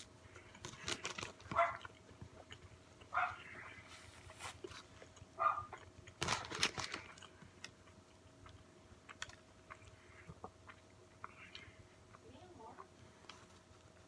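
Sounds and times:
person chewing: 0.0s - 12.2s
dog barking: 1.5s - 1.9s, 3.1s - 3.4s, 5.4s - 5.8s.

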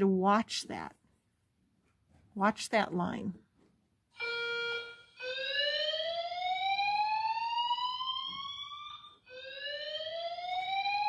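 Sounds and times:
buzzy alarm tone: 4.2s - 11.0s
rising fire alarm whoop: 4.2s - 11.0s.

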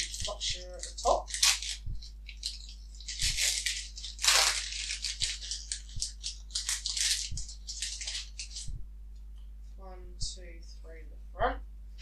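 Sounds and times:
foil wrapper crinkling and tearing: 0.0s - 8.7s.

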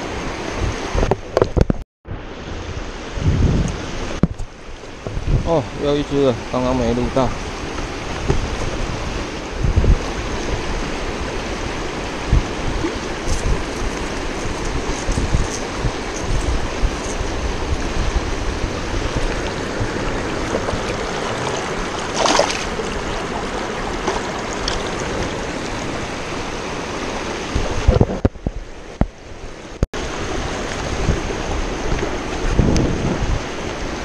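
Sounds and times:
river rapids rushing: 5.6s - 28.0s
water splash: 16.9s - 28.3s.

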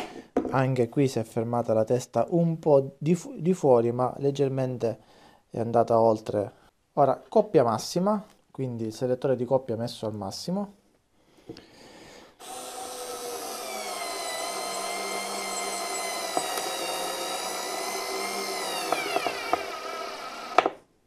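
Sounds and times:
cordless screwdriver motor whine: 12.4s - 20.7s.

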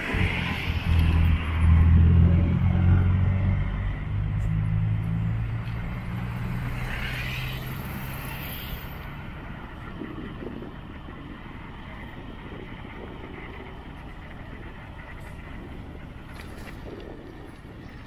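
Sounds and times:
vehicle engine hum: 0.0s - 18.0s.

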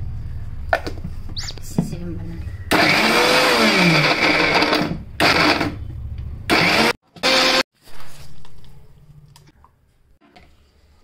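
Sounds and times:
mixer grinder running: 2.7s - 5.8s, 6.5s - 7.6s.

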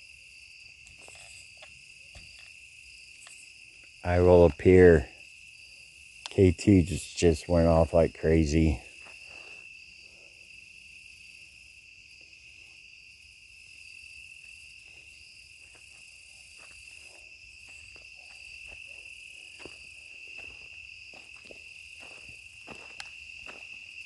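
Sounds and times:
crickets trilling: 0.0s - 24.0s
faint ticks and rustles: 0.7s - 2.6s.

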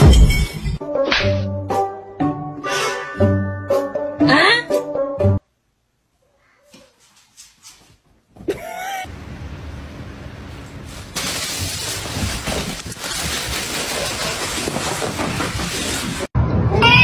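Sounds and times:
plastic bag crinkling: 10.8s - 16.3s.

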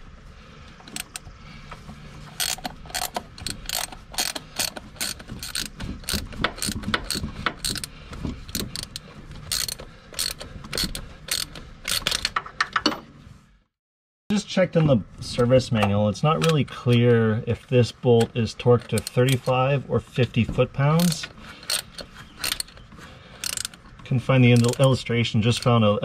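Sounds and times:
hand ratchet clicking: 0.9s - 1.3s, 2.3s - 12.4s, 18.8s - 19.5s, 21.0s - 23.9s, 24.5s - 25.8s.

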